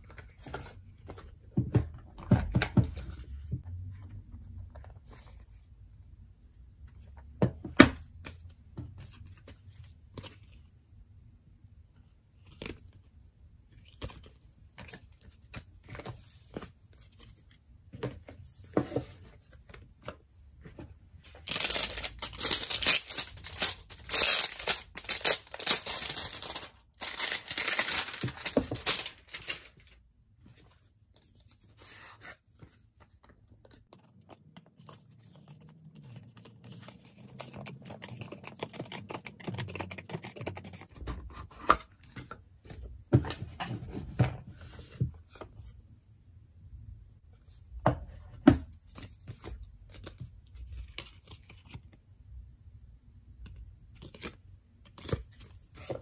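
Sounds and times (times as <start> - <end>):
plastic wrapping crinkling and tearing: 21.4 - 30.0.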